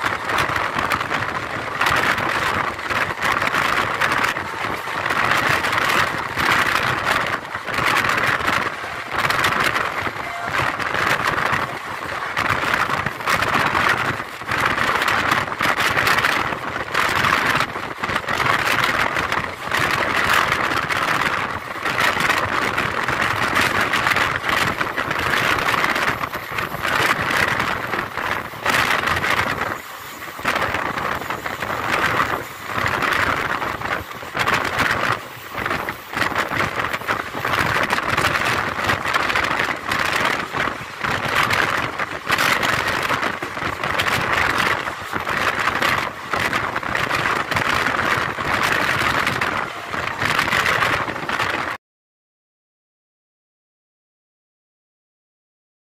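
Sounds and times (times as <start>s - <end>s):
train wheels on rails: 0.0s - 51.8s
wind rushing: 0.0s - 51.8s.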